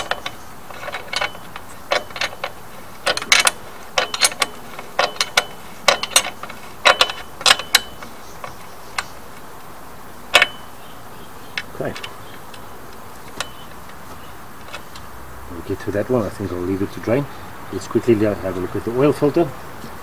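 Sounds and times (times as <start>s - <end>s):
hand ratchet clicking: 0.0s - 9.5s, 10.3s - 10.7s.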